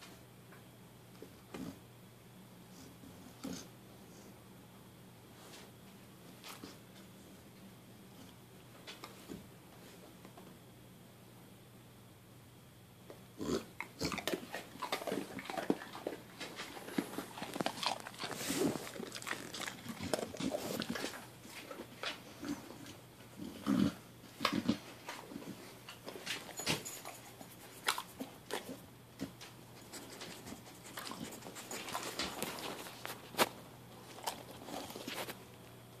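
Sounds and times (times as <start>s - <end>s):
dog chewing hard treat: 13.8s - 21.2s.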